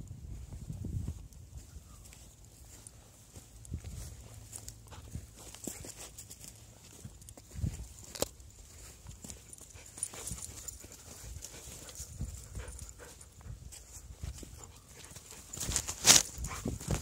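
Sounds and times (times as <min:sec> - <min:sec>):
dog panting: 0:09.3 - 0:15.6.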